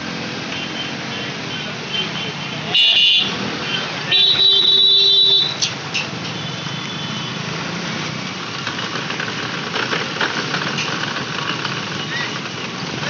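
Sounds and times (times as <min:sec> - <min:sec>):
street traffic noise: 0:00.0 - 0:13.0.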